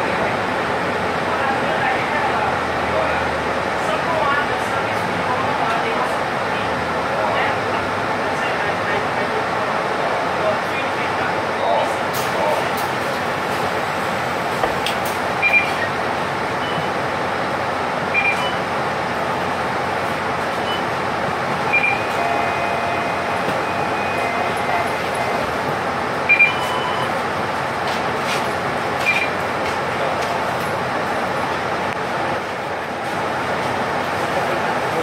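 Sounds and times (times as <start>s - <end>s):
bus engine idling: 0.0s - 35.0s
short electronic beeps: 15.4s - 15.9s, 16.6s - 17.0s, 18.1s - 18.6s, 20.6s - 20.9s, 21.7s - 25.4s, 26.3s - 27.1s, 29.0s - 29.4s.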